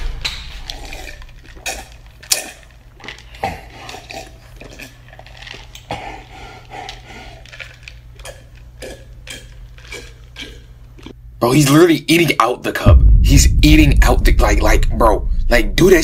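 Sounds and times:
person gulping and slurping: 0:00.6 - 0:11.2.

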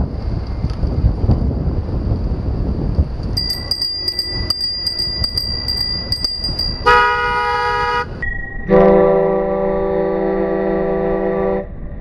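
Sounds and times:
bicycle horn blast: 0:06.7 - 0:11.6
lower-pitched horn tone: 0:06.8 - 0:11.8.

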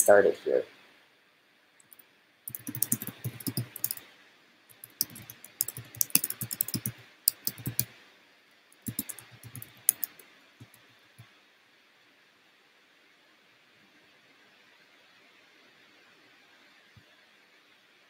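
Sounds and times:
typing on computer keyboard: 0:01.8 - 0:04.0, 0:04.7 - 0:07.9, 0:08.8 - 0:10.8.

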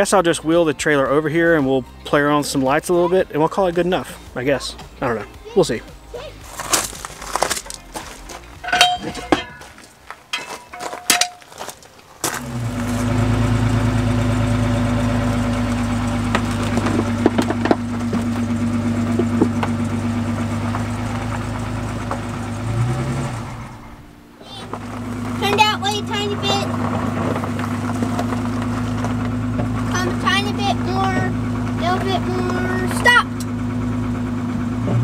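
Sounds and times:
car engine starting and running: 0:12.0 - 0:35.0.

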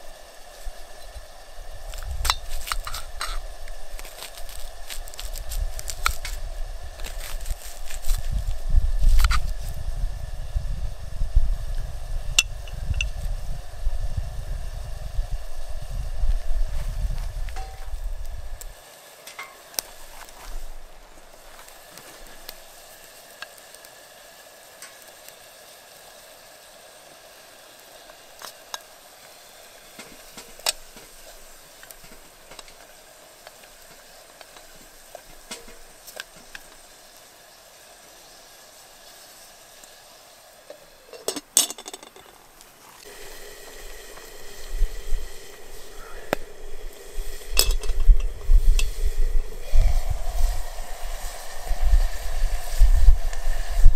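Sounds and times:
vegetables sizzling in a pot: 0:00.0 - 0:53.9
metal lid clattering onto pot: 0:41.1 - 0:42.3.

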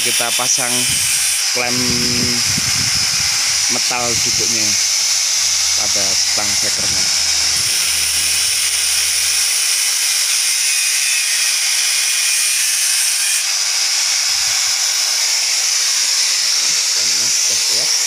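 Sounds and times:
high-pitched hiss and whine: 0:00.0 - 0:11.2
low hum: 0:05.4 - 0:09.5.

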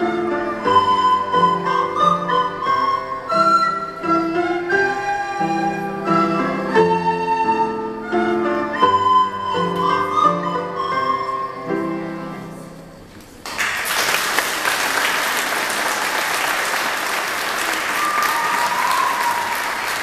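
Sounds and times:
audience applause: 0:13.4 - 0:20.0.

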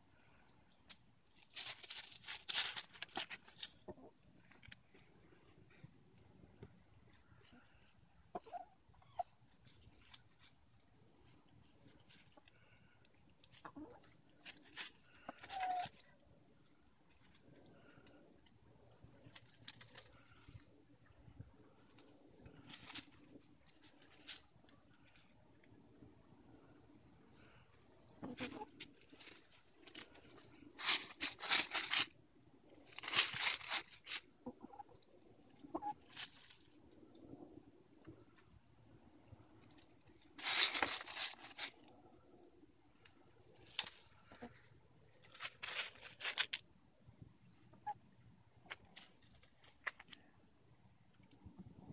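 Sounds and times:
rustling of dry leaves: 0:01.3 - 0:05.0, 0:09.4 - 0:18.2, 0:19.0 - 0:20.7, 0:21.8 - 0:25.7, 0:28.2 - 0:34.6, 0:35.5 - 0:36.8, 0:39.6 - 0:41.9, 0:42.9 - 0:46.7
hens clucking softly: 0:07.1 - 0:10.4, 0:12.0 - 0:16.0, 0:26.6 - 0:29.2, 0:33.2 - 0:37.4, 0:44.0 - 0:44.8.

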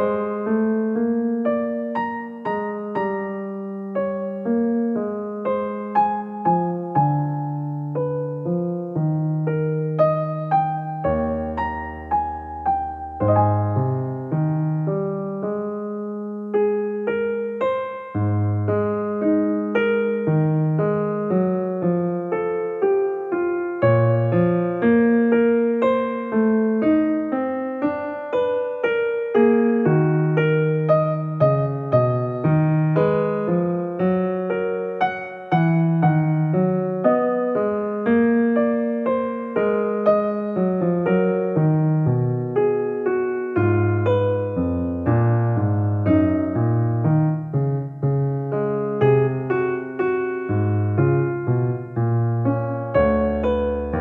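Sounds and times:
gentle piano melody: 0:00.0 - 0:54.0.

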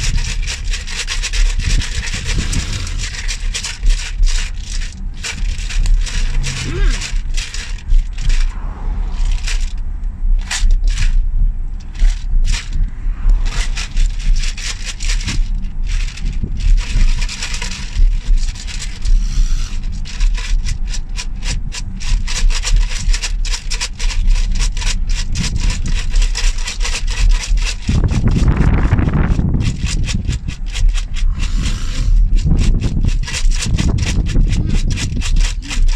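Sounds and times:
loud rush: 0:00.0 - 0:11.3, 0:11.9 - 0:18.0
road rumble inside car: 0:00.0 - 0:35.9
scratchy rubbing on microphone: 0:00.0 - 0:35.9.

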